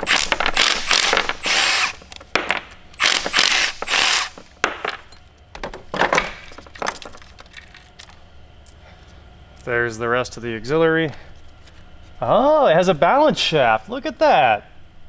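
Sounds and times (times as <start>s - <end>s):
ratchet wrench spinning: 0.0s - 2.2s, 3.0s - 4.5s
metal parts clinking: 0.0s - 8.2s.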